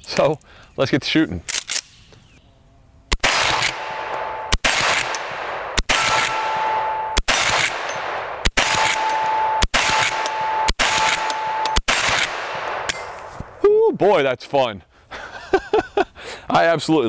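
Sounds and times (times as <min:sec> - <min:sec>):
rifle shots echoing: 0:03.1 - 0:13.2.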